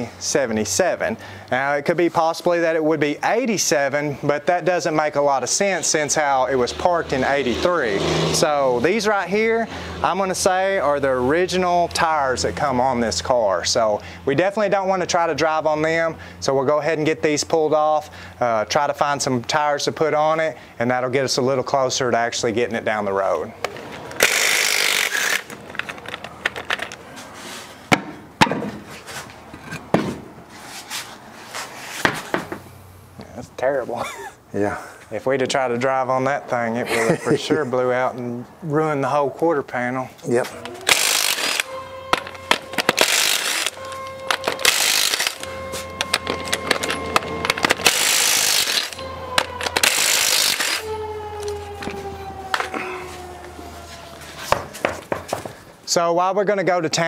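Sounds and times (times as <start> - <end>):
power wrench whirring: 24.1 - 26.9, 40.6 - 51.0
wheel knocks and clunks: 27.9 - 30.4, 32.0 - 32.7, 41.7 - 43.0, 45.5 - 47.9.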